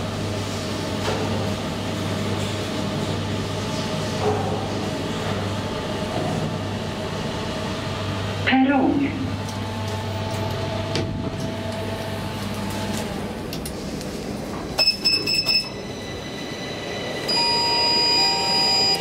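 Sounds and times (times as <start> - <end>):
elevator low hum: 0.0 - 19.0
short high electronic beeps: 14.8 - 15.8, 17.3 - 19.0
steady electronic tone: 14.8 - 19.0.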